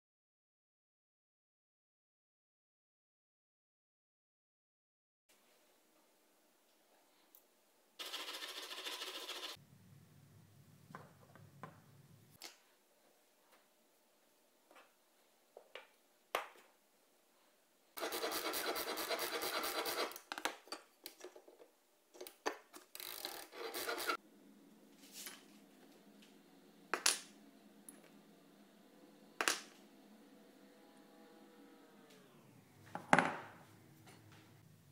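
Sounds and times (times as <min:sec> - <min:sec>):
file rasping on steel: 0:18.0 - 0:20.2, 0:23.4 - 0:24.2.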